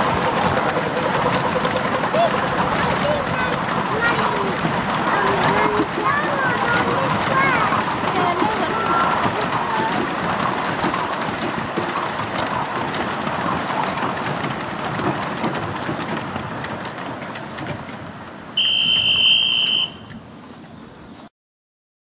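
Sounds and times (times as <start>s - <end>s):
train wheels clicking on rails: 0.0s - 21.2s
shrill steam whistle: 18.5s - 20.2s.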